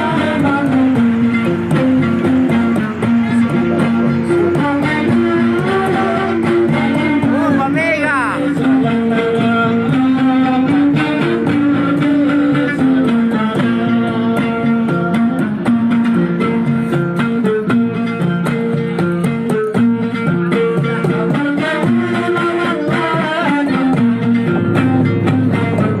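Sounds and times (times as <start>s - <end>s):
guitar-led background music: 0.0s - 26.0s.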